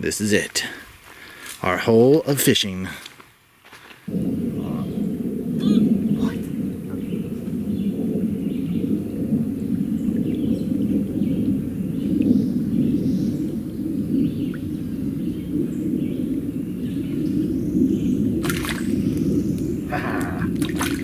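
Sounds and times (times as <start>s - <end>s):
low outdoor rumble: 4.1s - 21.0s
line splashing out of water: 18.4s - 19.0s, 20.3s - 21.0s.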